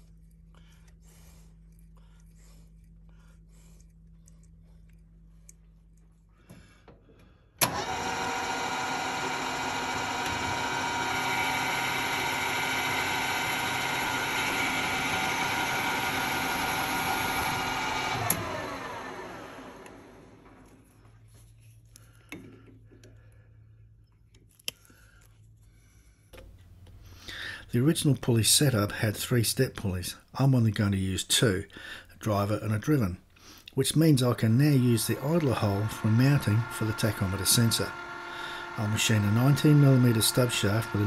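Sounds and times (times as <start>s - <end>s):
metal lathe whining: 7.6s - 20.6s, 34.4s - 41.0s.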